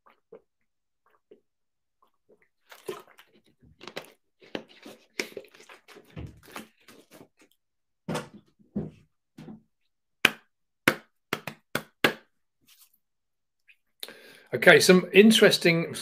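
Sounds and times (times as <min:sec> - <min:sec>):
person swallowing gulps: 0:00.0 - 0:07.2.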